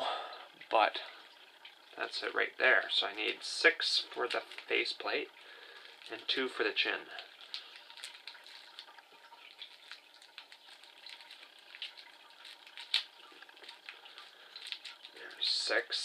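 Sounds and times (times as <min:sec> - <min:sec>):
plastic packet crinkling: 0:04.2 - 0:04.8, 0:07.2 - 0:15.5.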